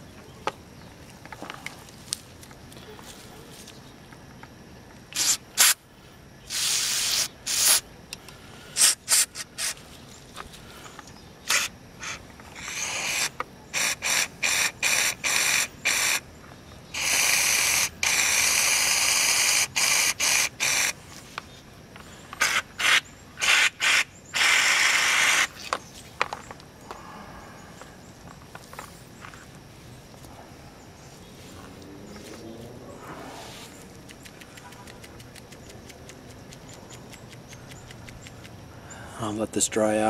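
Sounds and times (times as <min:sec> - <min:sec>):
aerosol spray hissing: 0:05.2 - 0:05.8, 0:06.5 - 0:07.8, 0:08.8 - 0:09.8.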